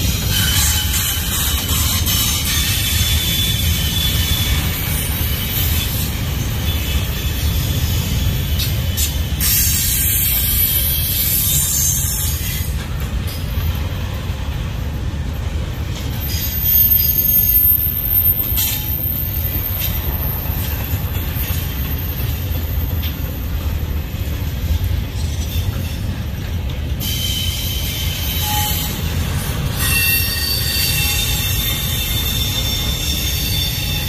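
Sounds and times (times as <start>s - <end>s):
freight train wheels rumbling: 0.0s - 34.0s
high-pitched wheel squeal: 16.2s - 22.4s, 27.0s - 34.0s.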